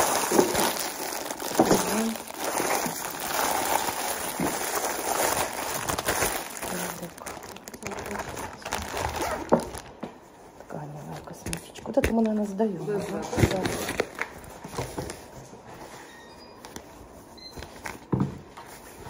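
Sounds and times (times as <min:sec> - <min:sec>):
plastic packaging crinkling: 0:00.0 - 0:10.0, 0:11.4 - 0:15.3.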